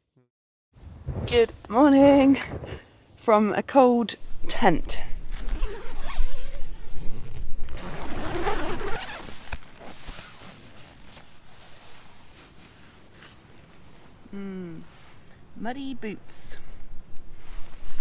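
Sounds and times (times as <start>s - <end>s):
nylon fabric rustling: 4.2s - 15.2s
tent zip pulled open: 5.1s - 14.2s.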